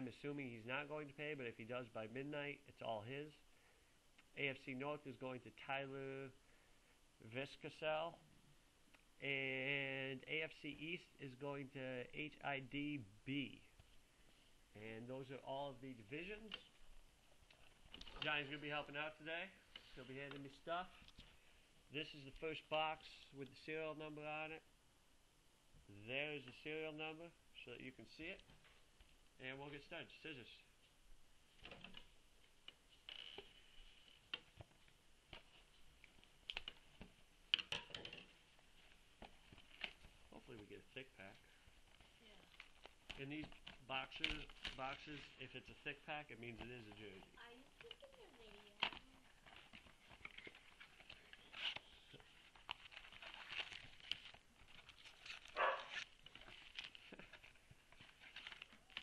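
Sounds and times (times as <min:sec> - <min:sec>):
plastic wrap and cardboard crinkling: 0:46.8 - 0:59.0.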